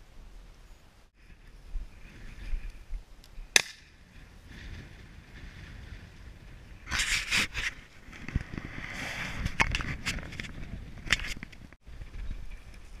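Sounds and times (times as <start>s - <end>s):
sharp crack: 3.5s - 4.0s.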